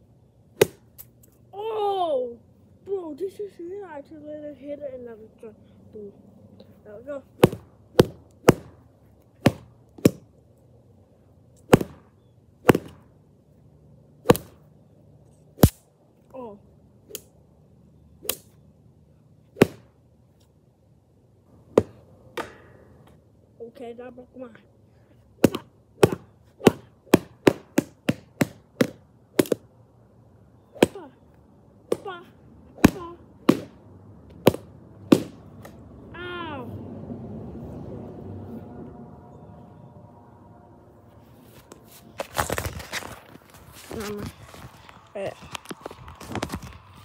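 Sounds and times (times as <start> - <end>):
stick smacking punching bag: 7.4 - 8.8, 9.4 - 10.2, 11.6 - 13.0, 14.2 - 14.6, 19.6 - 19.9, 25.4 - 29.6, 32.8 - 33.8, 34.4 - 35.8.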